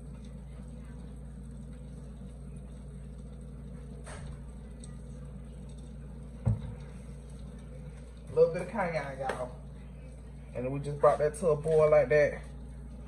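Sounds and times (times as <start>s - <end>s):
steady low hum: 0.0s - 13.0s
short thump: 6.4s - 6.8s.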